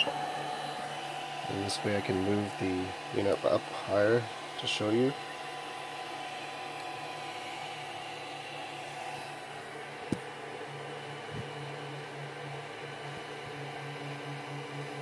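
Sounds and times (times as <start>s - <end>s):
cooling fans running: 0.0s - 15.0s
low pulsing hum: 9.4s - 15.0s.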